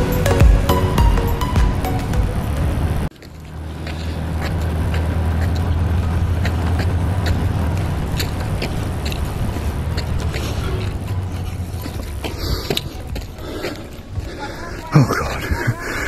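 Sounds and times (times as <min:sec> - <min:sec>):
background music: 0:00.0 - 0:03.1
scooter engine running: 0:00.0 - 0:14.6.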